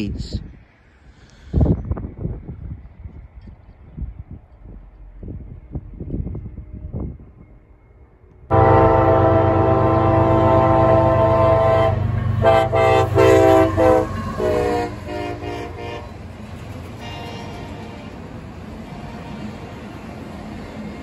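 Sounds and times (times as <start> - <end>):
passing train rumble: 0.0 - 21.0
locomotive air horn blasts: 8.5 - 16.2, 17.0 - 18.1.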